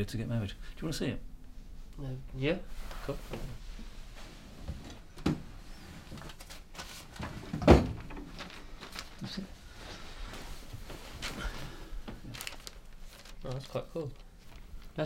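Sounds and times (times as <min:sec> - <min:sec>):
cabinet door thump: 0:07.6 - 0:08.1.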